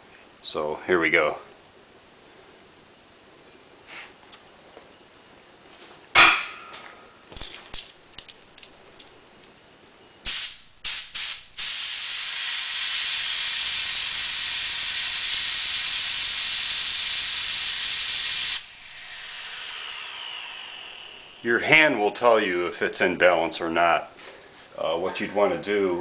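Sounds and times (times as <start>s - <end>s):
sharp knock: 6.2s - 6.8s
compressed air blow gun hissing: 10.3s - 22.3s.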